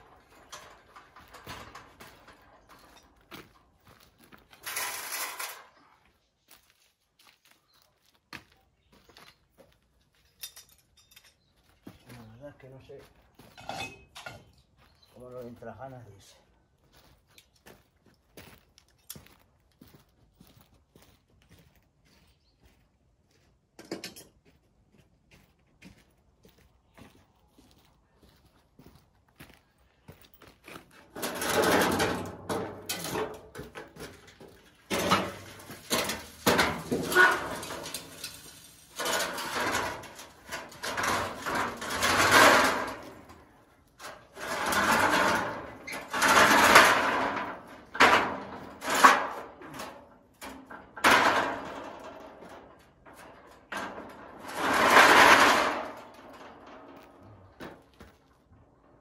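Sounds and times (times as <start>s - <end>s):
scaffolding parts scraping: 0.0s - 6.2s, 13.0s - 15.5s, 30.8s - 59.0s.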